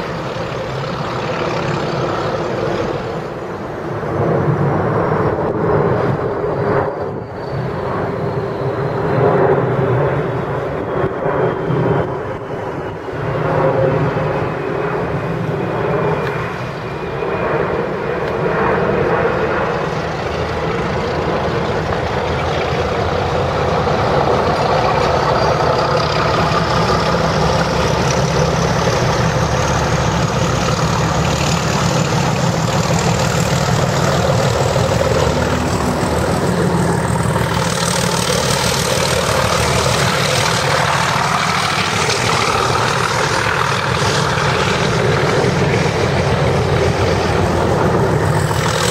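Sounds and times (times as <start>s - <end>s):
diesel locomotive engine drone: 0.0s - 48.9s
thin rising whine: 14.0s - 48.9s.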